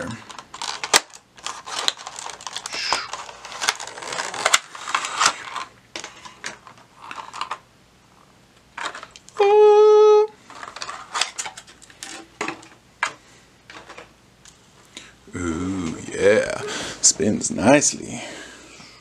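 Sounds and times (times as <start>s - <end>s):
plastic packaging clicks and crinkles: 0.0s - 7.6s, 8.7s - 9.4s, 10.4s - 14.6s.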